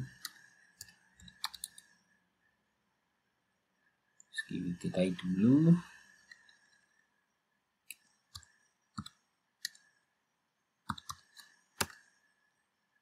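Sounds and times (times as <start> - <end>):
keyboard keys clicking: 0.0 - 1.9.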